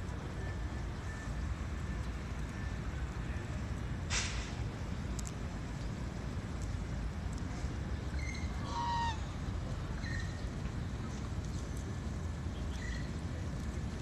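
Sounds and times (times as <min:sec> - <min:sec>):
waterfowl honking: 0:08.6 - 0:09.3.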